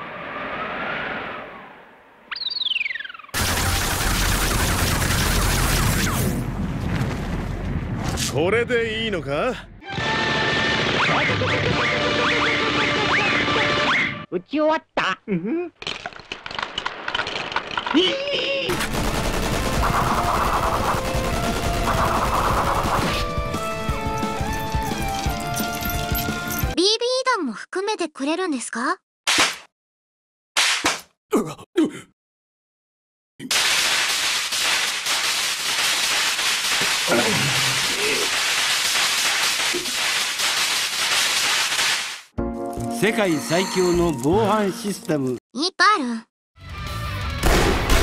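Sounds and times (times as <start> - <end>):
machine-gun fire: 3.4 - 6.2, 18.7 - 24.3, 33.5 - 42.3, 47.4 - 48.0
short vocal sound: 37.1 - 38.3.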